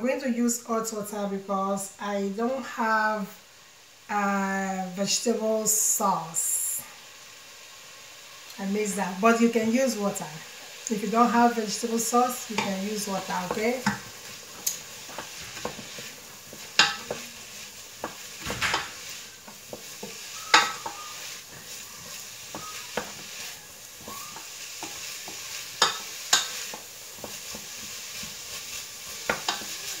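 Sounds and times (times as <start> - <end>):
onion and garlic sizzling in oil: 0.0 - 30.0
wooden spoon knocking on pot: 19.7 - 21.1.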